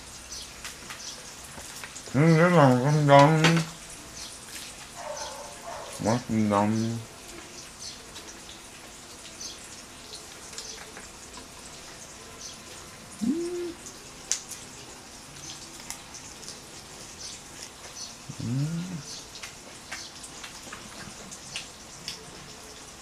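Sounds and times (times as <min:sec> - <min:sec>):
meat sizzling on a grill: 0:00.0 - 0:13.2, 0:13.8 - 0:23.0
person humming: 0:02.2 - 0:02.9, 0:13.2 - 0:13.8, 0:18.3 - 0:19.2.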